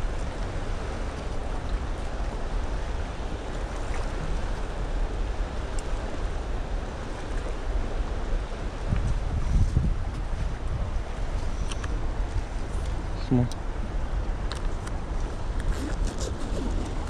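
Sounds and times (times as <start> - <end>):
river water rushing: 0.0 - 17.0
faint small clicks: 11.6 - 12.0, 14.5 - 15.0.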